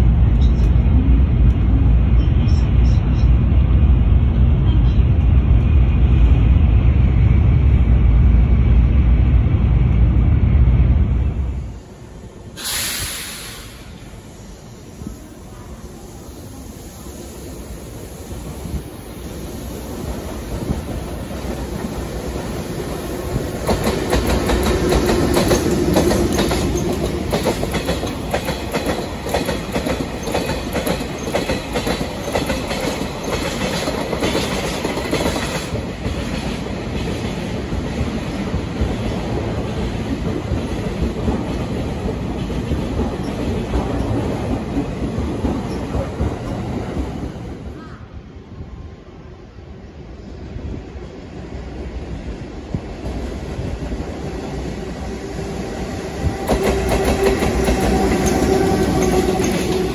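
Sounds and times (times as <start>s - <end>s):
train wheels clattering over rail joints: 23.3s - 47.2s.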